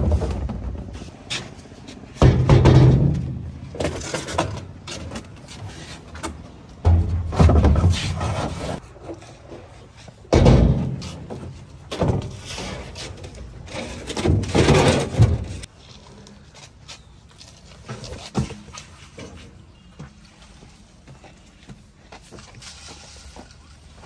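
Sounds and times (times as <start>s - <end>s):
plastic drums thudding and rolling: 0.0s - 1.5s, 2.1s - 5.5s, 6.1s - 9.2s, 10.3s - 15.7s
tyres dropped onto a stack: 2.2s - 5.4s, 6.8s - 8.6s, 13.7s - 15.7s.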